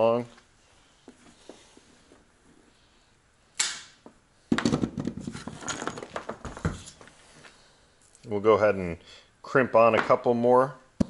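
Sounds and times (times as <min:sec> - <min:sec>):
tools clattering on wooden bench: 0:04.5 - 0:07.0.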